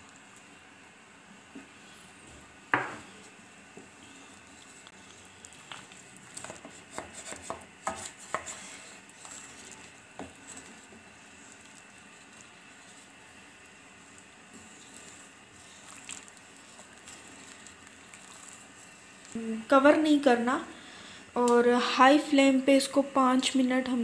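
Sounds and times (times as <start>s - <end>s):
wooden spoon knocking and scraping pan: 2.8s - 3.1s, 6.4s - 8.6s.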